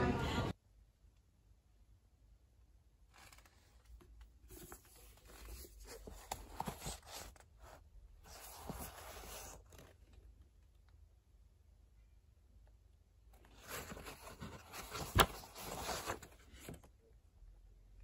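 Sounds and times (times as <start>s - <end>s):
book rustling and clicks: 3.1s - 7.4s, 8.3s - 10.0s, 13.5s - 16.9s.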